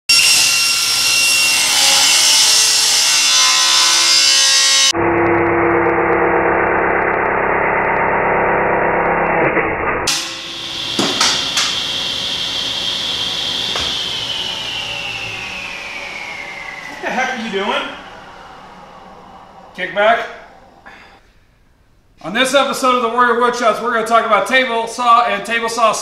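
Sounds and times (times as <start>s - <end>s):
table saw cutting panel: 0.1s - 4.9s, 5.6s - 20.9s
saw blade whine coasting down: 0.1s - 21.2s.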